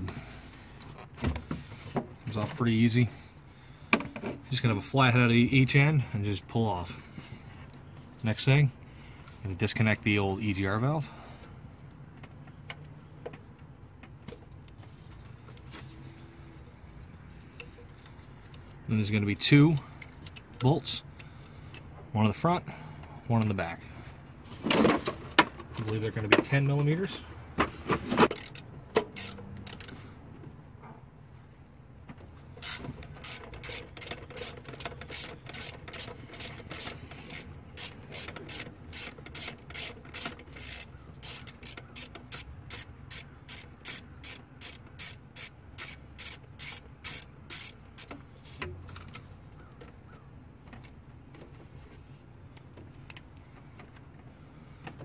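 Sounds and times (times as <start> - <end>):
hand ratchet clicking: 28.3 - 30.0, 32.6 - 48.2.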